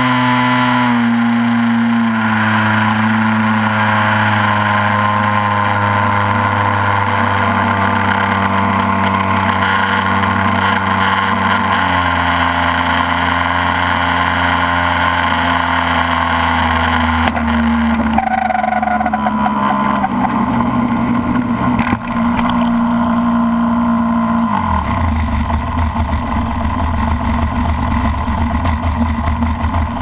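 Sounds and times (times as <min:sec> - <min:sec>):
model plane engine running: 0:25.1 - 0:30.0.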